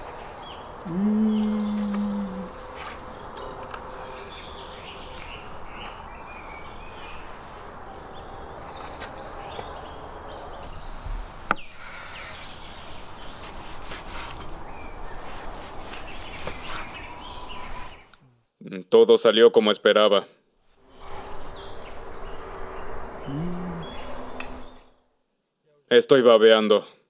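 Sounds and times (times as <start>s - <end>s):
birds chirping: 0.0s - 13.7s, 14.6s - 18.2s, 20.9s - 25.0s
outdoor background noise: 0.0s - 26.8s.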